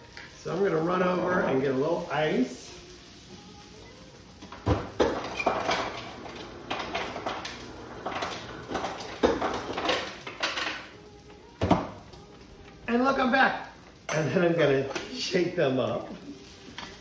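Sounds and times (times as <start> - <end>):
utensils knocking and clinking: 4.6 - 10.8.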